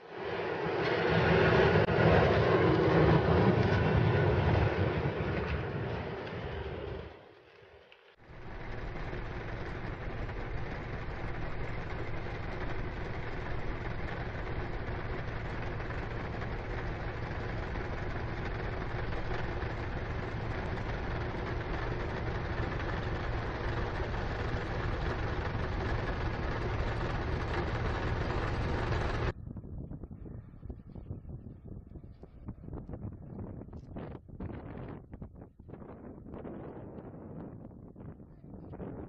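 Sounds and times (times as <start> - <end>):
heavy engine running: 8.2 - 29.4.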